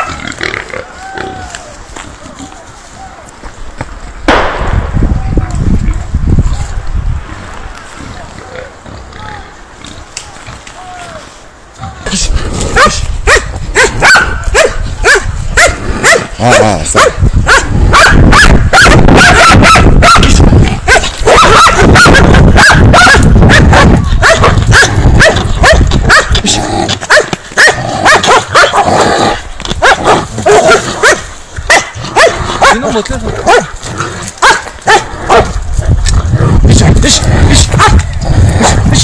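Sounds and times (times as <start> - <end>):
dogs barking frantically: 12.7 - 35.6, 37.7 - 38.9.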